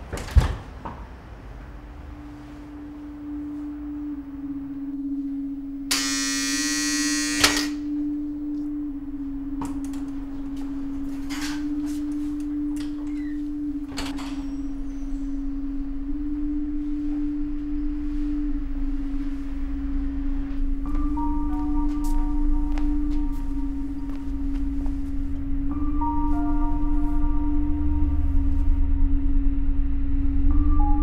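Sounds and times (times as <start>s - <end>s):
low wavering drone tone: 1.7s - 31.0s
electric door buzzer: 5.9s - 7.9s.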